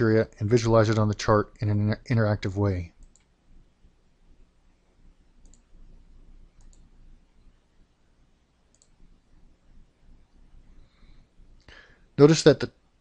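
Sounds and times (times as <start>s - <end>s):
low room noise: 0.0s - 13.0s
faint computer mouse clicks: 3.0s - 3.4s, 5.4s - 5.7s, 6.6s - 6.9s, 8.7s - 9.0s.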